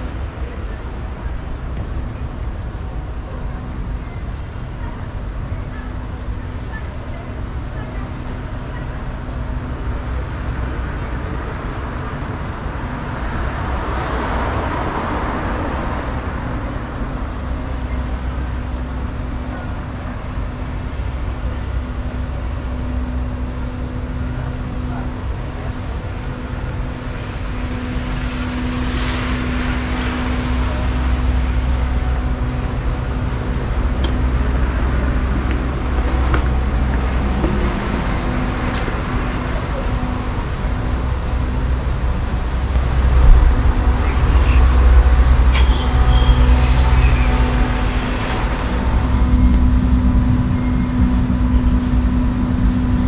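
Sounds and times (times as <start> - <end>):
low engine hum of traffic: 0.0 - 53.0
vehicles passing: 25.8 - 52.6.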